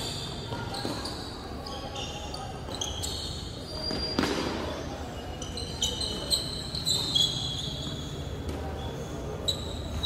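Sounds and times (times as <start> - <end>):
high thin squeaks: 0.0 - 10.0
ball bounces: 3.8 - 4.8.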